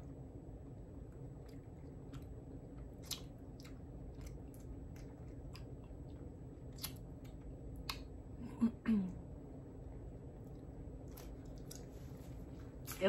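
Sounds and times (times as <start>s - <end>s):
low room hum: 0.0s - 13.0s
person chewing: 1.1s - 8.2s, 10.4s - 13.0s.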